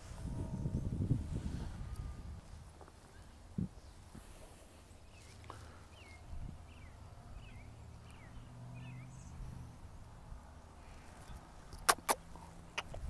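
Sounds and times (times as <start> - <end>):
bird chirping: 5.0 - 9.7.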